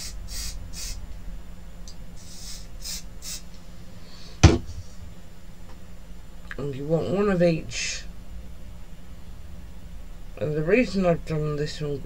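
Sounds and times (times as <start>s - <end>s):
aerosol spray hissing: 0.0s - 1.0s, 2.2s - 3.5s
sharp thump: 4.4s - 4.8s.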